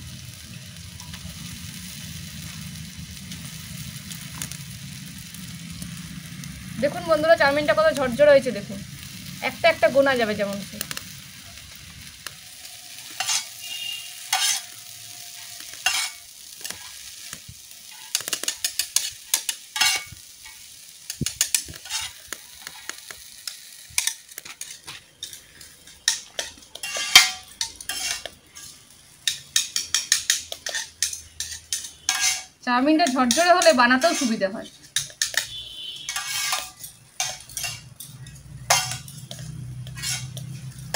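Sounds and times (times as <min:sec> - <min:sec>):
noodles sizzling in oil: 0:00.0 - 0:40.9
spatula scraping and knocking pan: 0:13.0 - 0:17.0, 0:17.9 - 0:23.0, 0:24.0 - 0:40.9.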